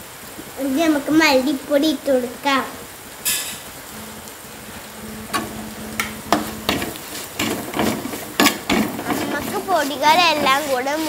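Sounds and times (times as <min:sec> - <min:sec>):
spice sizzling in hot oil: 0:03.0 - 0:11.0
spatula scraping clay pot: 0:06.3 - 0:11.0.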